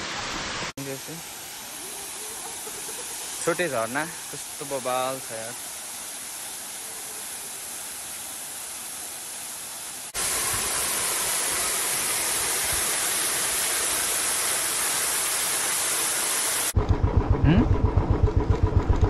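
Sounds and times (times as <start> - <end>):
waterfall rushing: 0.0 - 16.8.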